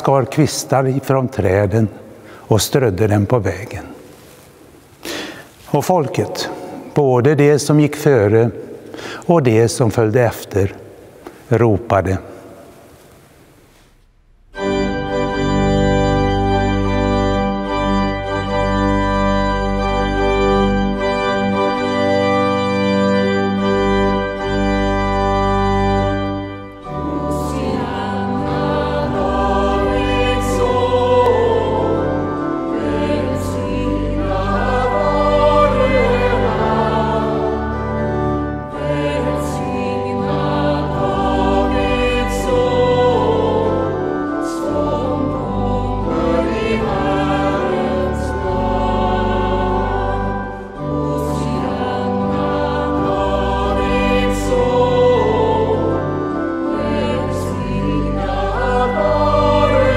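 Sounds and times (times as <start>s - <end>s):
pipe organ chords: 14.0s - 59.9s
mixed choir singing: 26.9s - 59.9s.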